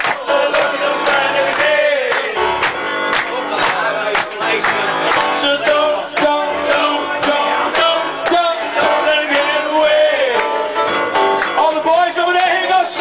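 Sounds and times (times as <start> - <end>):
keyboard playing: 0.0 - 13.0
man singing: 3.4 - 10.8, 11.6 - 13.0.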